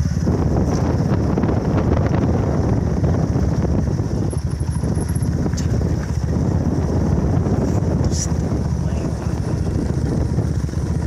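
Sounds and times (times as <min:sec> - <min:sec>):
motorcycle engine rumbling: 0:00.0 - 0:11.0
wind buffeting microphone: 0:00.0 - 0:11.0.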